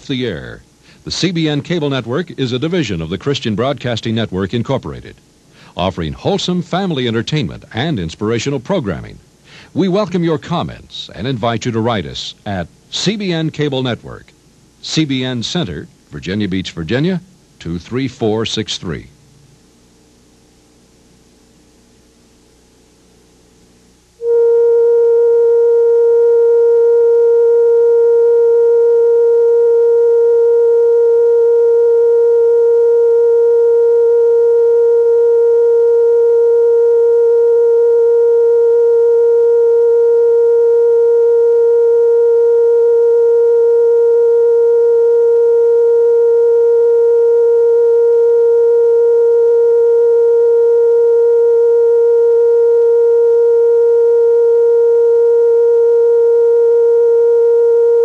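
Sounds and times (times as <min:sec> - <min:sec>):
steady test tone: 0:00.0 - 0:05.2, 0:23.9 - 0:58.0.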